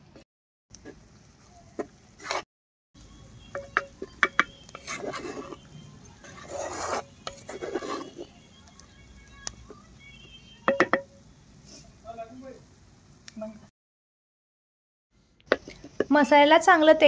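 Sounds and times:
spatula scraping earthenware pot: 0:02.2 - 0:02.5, 0:03.5 - 0:08.4.

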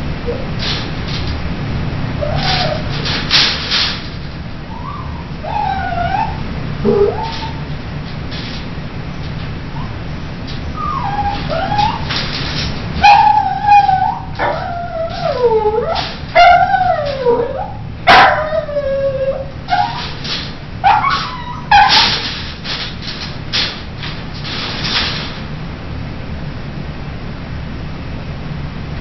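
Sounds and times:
dog howling and whimpering: 0:02.2 - 0:02.9, 0:04.7 - 0:07.7, 0:10.6 - 0:12.1, 0:13.0 - 0:20.2, 0:20.8 - 0:22.2.

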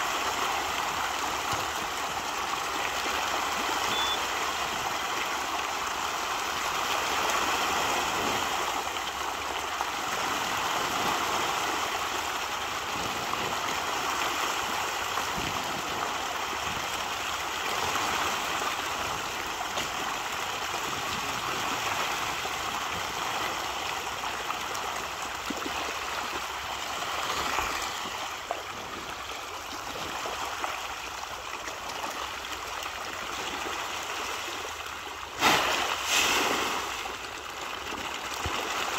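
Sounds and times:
fish splashing at water surface: 0:35.3 - 0:38.9.

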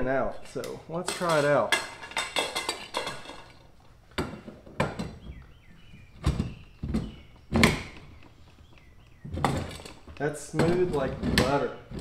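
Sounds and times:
metal bar rattling: 0:00.5 - 0:05.3, 0:09.2 - 0:12.0.

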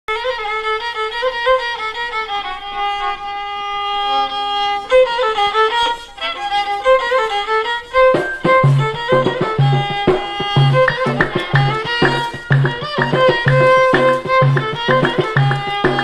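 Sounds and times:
violin folk melody: 0:00.1 - 0:16.0.

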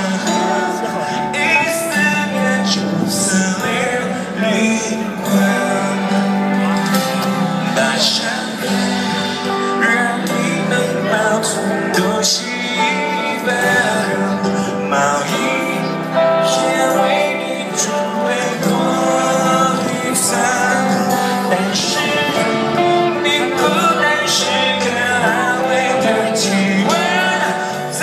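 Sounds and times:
live band playing a ballad: 0:00.0 - 0:28.0.

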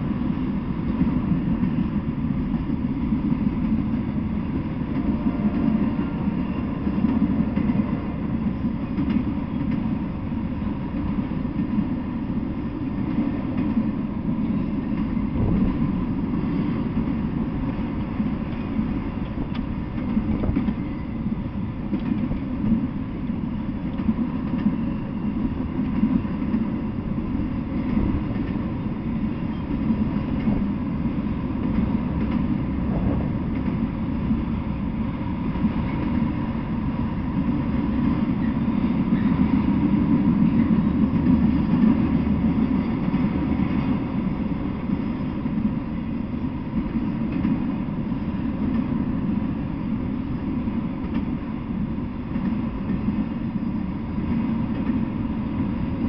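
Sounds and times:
freight train rumbling past: 0:00.0 - 0:56.0
train clattering knocks: 0:00.8 - 0:10.1, 0:12.9 - 0:45.8, 0:46.8 - 0:49.2.

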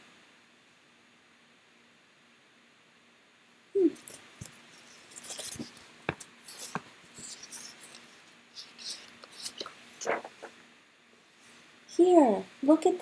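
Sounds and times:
faint rustling: 0:03.8 - 0:10.6.

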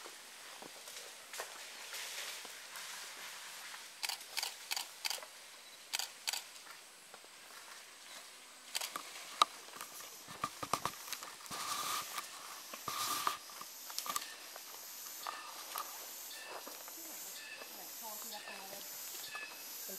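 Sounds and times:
camera shutter clicks: 0:04.0 - 0:05.2, 0:05.9 - 0:06.5.

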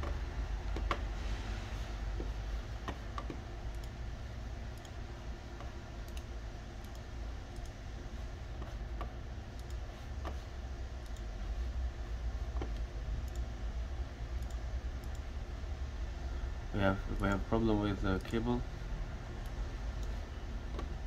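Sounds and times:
steady low hum: 0:00.0 - 0:21.0
computer mouse clicking: 0:02.2 - 0:04.0, 0:04.7 - 0:07.8, 0:08.6 - 0:11.3, 0:12.5 - 0:13.5, 0:14.4 - 0:15.3, 0:19.4 - 0:21.0.

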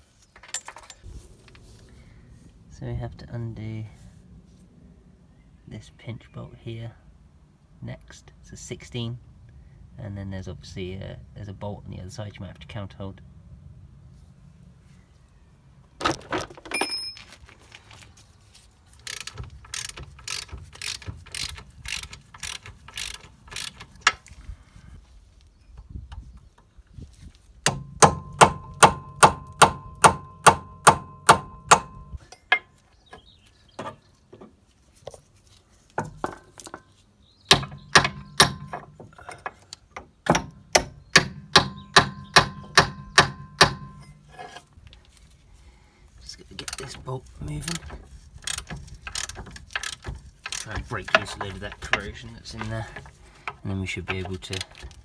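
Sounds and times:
ratchet clicks: 0:19.0 - 0:24.2, 0:46.6 - 0:47.0, 0:47.7 - 0:51.3.

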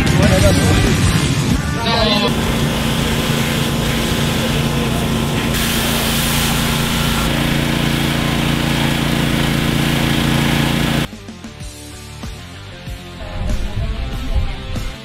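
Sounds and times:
water jet hissing: 0:02.2 - 0:11.1
pressure washer motor hum: 0:02.3 - 0:11.1.

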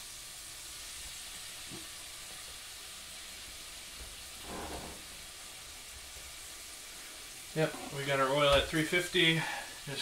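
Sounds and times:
food sizzling in oil: 0:00.0 - 0:10.0.

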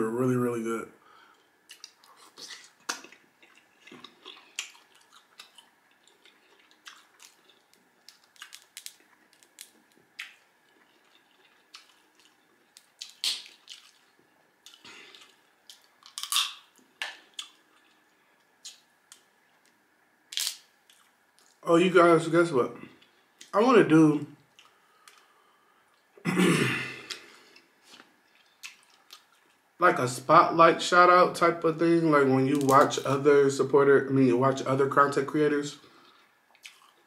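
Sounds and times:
lip smacks: 0:01.7 - 0:18.0
crab shell cracking: 0:02.8 - 0:10.5, 0:11.2 - 0:14.1, 0:14.7 - 0:18.0, 0:18.6 - 0:21.6.

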